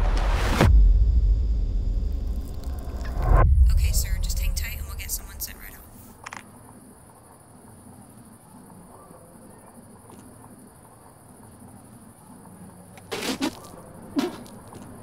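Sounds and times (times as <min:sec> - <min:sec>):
crickets chirring: 0:03.7 - 0:15.0.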